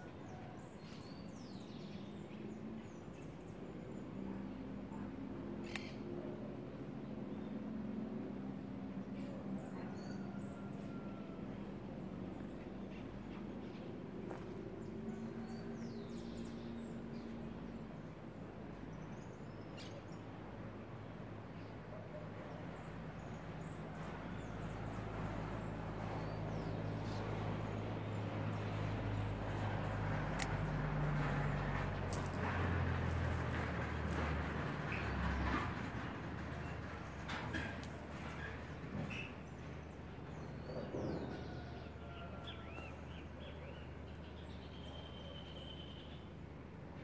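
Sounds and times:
steady background noise: 0:00.0 - 0:44.6
low engine hum: 0:00.0 - 0:47.0
birds chirping: 0:26.2 - 0:46.3.

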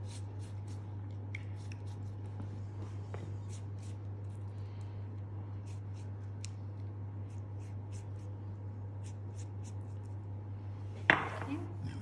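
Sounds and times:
pastry brush strokes: 0:00.0 - 0:04.6, 0:05.5 - 0:10.2.

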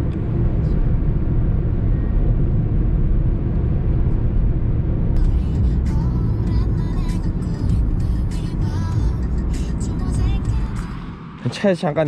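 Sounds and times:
road and engine rumble in car: 0:00.0 - 0:12.0
music: 0:05.2 - 0:11.5.

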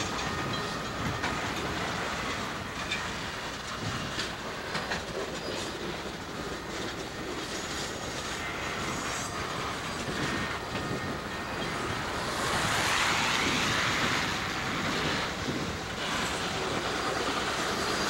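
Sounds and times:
faint high wheel squeal: 0:00.0 - 0:18.0
freight train rumbling: 0:00.0 - 0:18.0.

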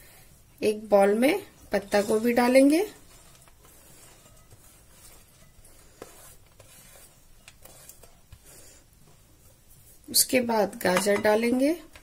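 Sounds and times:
cabbage scraped off steel plate: 0:01.8 - 0:08.8.

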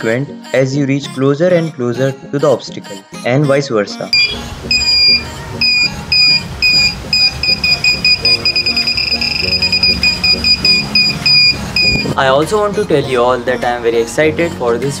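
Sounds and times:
high-pitched electronic buzzer beeping: 0:04.2 - 0:12.2.

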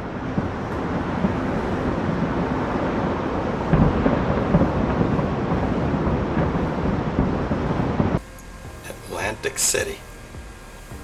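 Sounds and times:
distant fireworks rumble: 0:00.0 - 0:08.2
fireworks bangs: 0:00.0 - 0:08.2.

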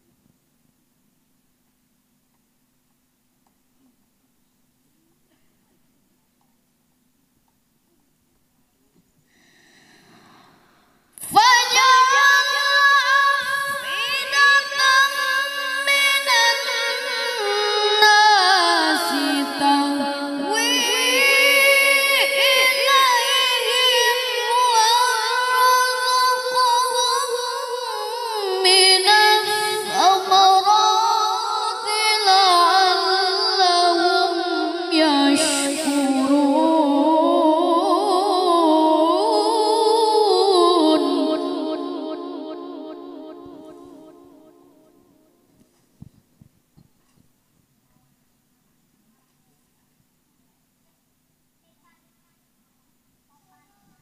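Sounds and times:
boy reciting melodically into microphone: 0:11.2 - 0:45.0, 0:51.6 - 0:54.0.

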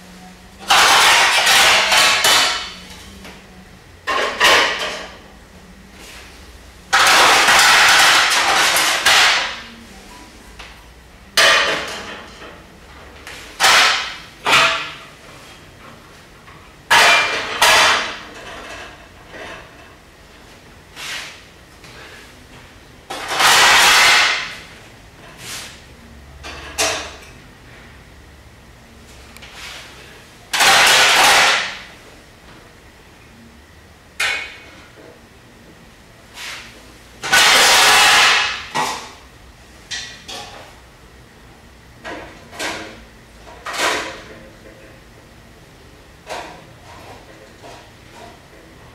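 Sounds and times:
metal dishes clattering: 0:00.6 - 0:02.8.

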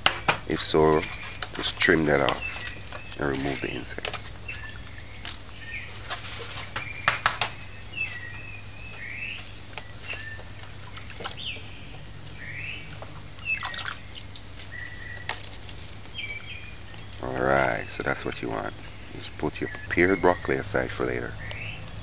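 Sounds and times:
small birds chirping: 0:00.0 - 0:22.0
water splashing and dripping: 0:00.6 - 0:08.4, 0:09.0 - 0:18.7
hands swishing vegetables in water: 0:00.9 - 0:07.0, 0:09.4 - 0:17.4.

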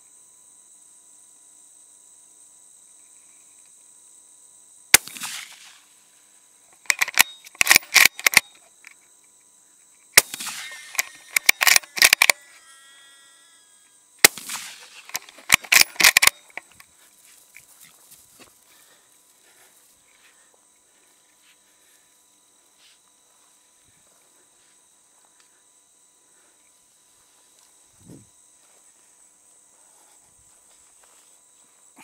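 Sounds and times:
crickets chirping: 0:00.0 - 0:32.0
rifle gunfire: 0:05.0 - 0:05.8, 0:10.2 - 0:12.4, 0:14.2 - 0:16.4.

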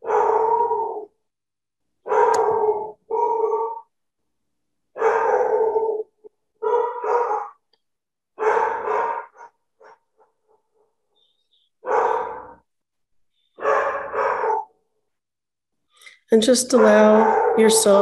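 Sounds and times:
dog barking: 0:00.0 - 0:01.0, 0:02.0 - 0:03.8, 0:05.0 - 0:06.0, 0:06.6 - 0:07.6, 0:08.4 - 0:10.4, 0:11.8 - 0:12.6, 0:13.6 - 0:14.8, 0:16.8 - 0:18.0.

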